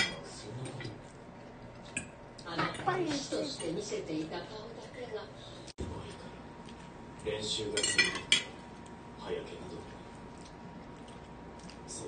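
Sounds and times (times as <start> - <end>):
cutlery clinking on plate: 7.8 - 8.5.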